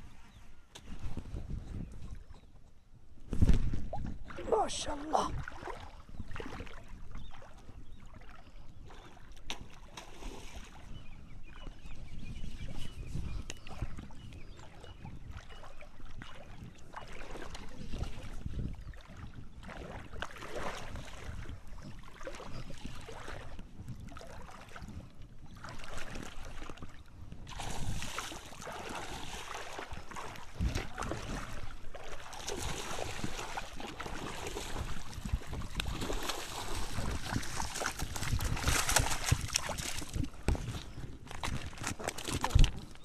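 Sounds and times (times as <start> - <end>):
wind buffeting microphone: 0.0 - 43.0
fish splashing at surface: 35.9 - 40.2.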